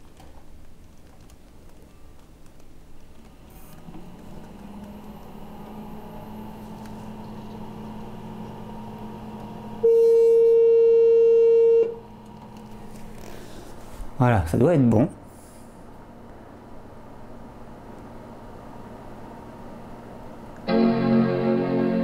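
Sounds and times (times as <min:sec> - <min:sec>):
computer hum drone: 0:03.1 - 0:13.6
loud steady beep: 0:09.8 - 0:12.0.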